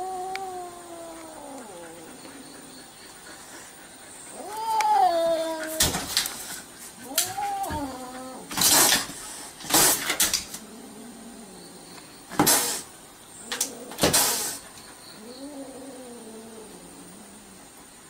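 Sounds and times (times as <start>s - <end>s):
cat yowling: 0.0s - 2.1s, 4.3s - 6.0s, 7.0s - 8.5s
cat hissing: 0.0s - 11.6s, 12.3s - 17.6s.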